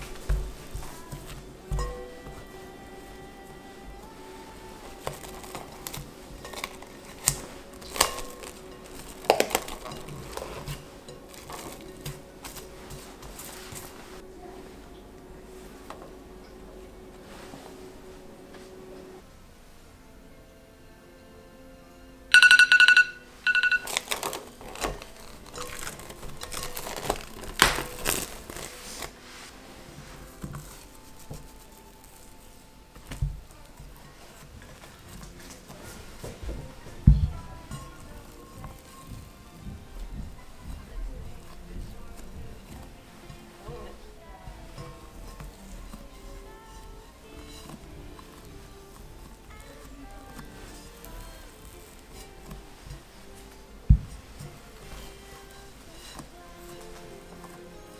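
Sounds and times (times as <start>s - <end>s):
cling film crinkling: 0.0s - 14.3s, 23.5s - 57.9s
phone timer beeping: 22.3s - 23.9s.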